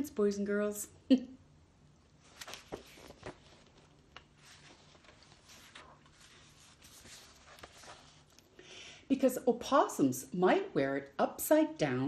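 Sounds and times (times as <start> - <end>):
room noise: 0.0 - 11.0
book pages turning: 2.2 - 8.5.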